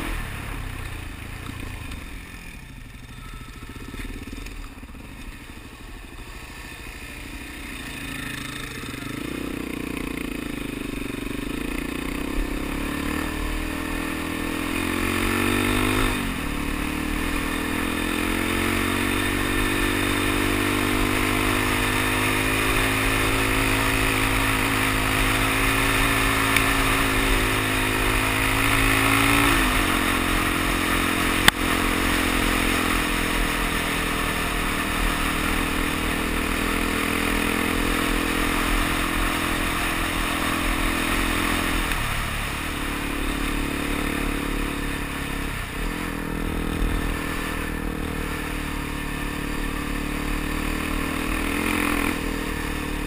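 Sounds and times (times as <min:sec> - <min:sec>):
motorcycle engine on gravel road: 0:00.0 - 0:53.0.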